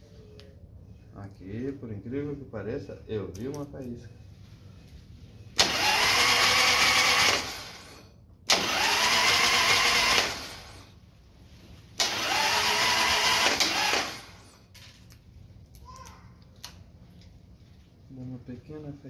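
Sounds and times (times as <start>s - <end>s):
motorcycle electric starter cranking: 5.6s - 10.9s, 12.0s - 14.7s.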